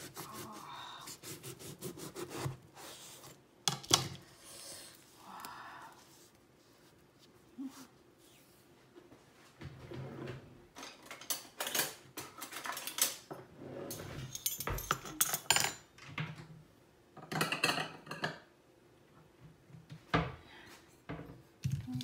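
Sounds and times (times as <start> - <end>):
metal utensils clinking on dishes: 14.3 - 15.9.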